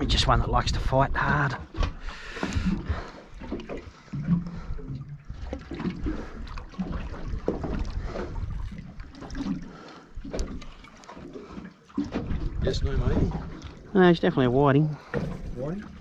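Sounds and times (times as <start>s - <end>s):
wind buffeting microphone: 0.0s - 9.5s, 12.0s - 16.0s
water lapping against hull: 0.0s - 16.0s
knocks on boat: 15.0s - 16.0s.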